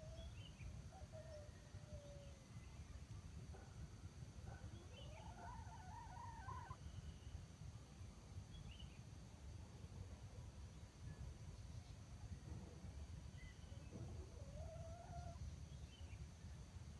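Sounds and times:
faint rooster crow: 0:00.0 - 0:03.0, 0:04.6 - 0:07.1, 0:13.4 - 0:15.5
small birds chirping: 0:04.5 - 0:07.4.

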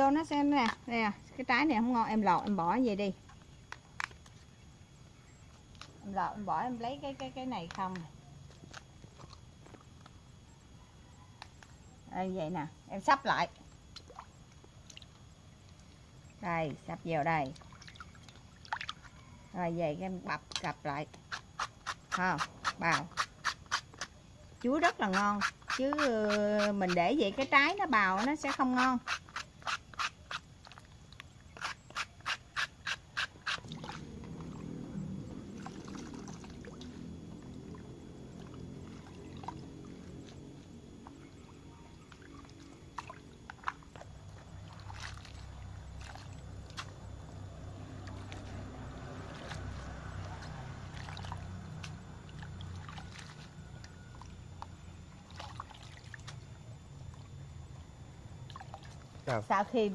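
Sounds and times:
steady low hum: 0:00.0 - 0:59.9
hand sloshing water in basin: 0:16.8 - 0:19.1, 0:33.3 - 0:54.4, 0:55.0 - 0:57.3, 0:58.4 - 0:59.5
hands splashing in water: 0:42.1 - 0:47.0, 0:49.2 - 0:53.5.

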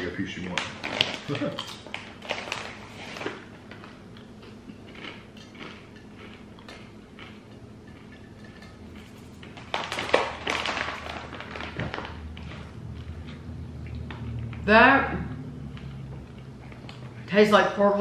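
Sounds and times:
plastic snack bag crinkling: 0:00.4 - 0:04.0, 0:09.0 - 0:13.2
crunching of crisps being eaten: 0:00.4 - 0:14.6.

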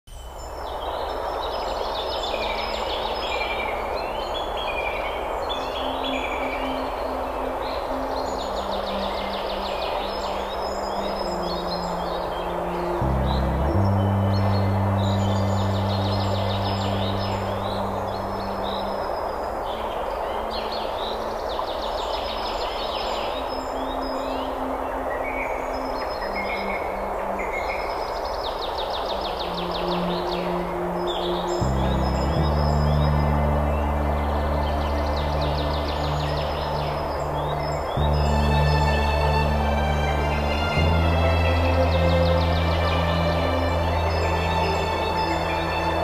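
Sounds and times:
low steady hum: 0:00.1 - 0:21.6, 0:22.7 - 0:46.0
songbirds singing: 0:00.1 - 0:46.0
stream water rushing: 0:00.2 - 0:46.0.

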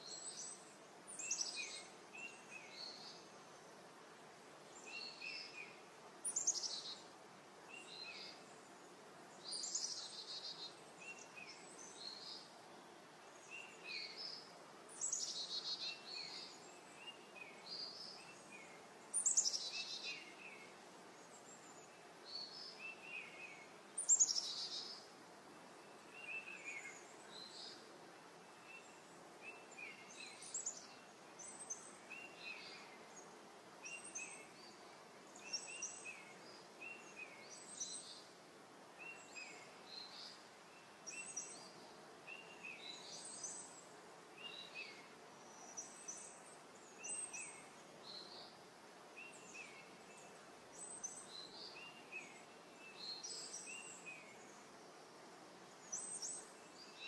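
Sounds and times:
faint steady hiss: 0:00.0 - 0:57.0.

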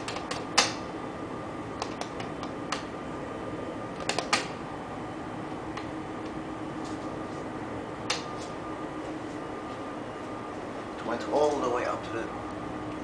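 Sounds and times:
steady hum: 0:00.0 - 0:13.0
elevator button clicking: 0:01.8 - 0:02.9, 0:04.0 - 0:04.6.

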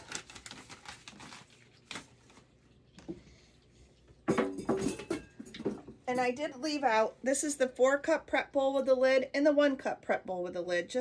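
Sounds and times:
kitchenware knocks and clicks: 0:04.3 - 0:06.0
kitchenware clattering: 0:04.3 - 0:06.4.

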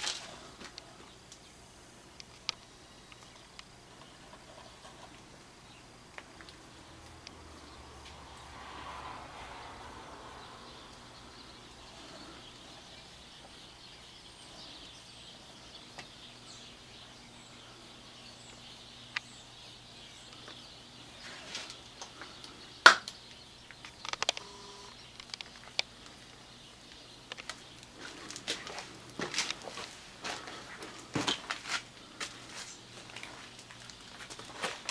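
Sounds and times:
faint high chirps: 0:23.2 - 0:25.0.

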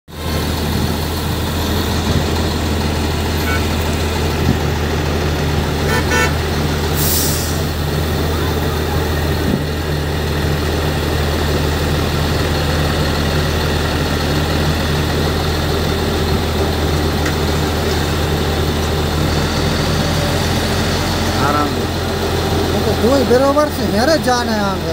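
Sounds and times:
diesel engine running: 0:00.1 - 0:24.9
horn toot: 0:03.4 - 0:03.9, 0:05.8 - 0:07.7.

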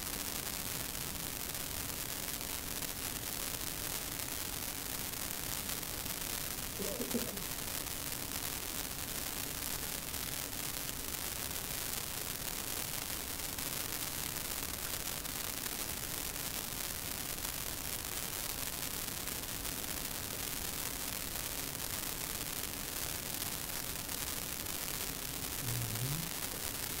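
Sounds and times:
steady hiss: 0:00.0 - 0:27.0
faint low hum: 0:25.6 - 0:26.6.

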